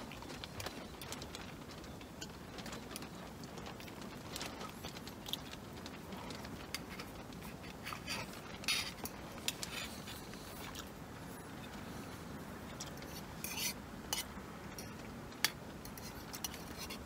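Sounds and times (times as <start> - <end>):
spoon scraping metal pot: 13.1 - 15.0.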